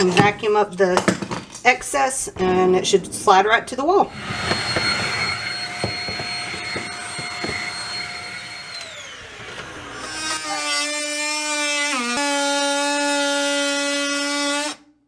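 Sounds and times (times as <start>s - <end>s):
handheld vacuum cleaner whine: 4.1s - 10.7s.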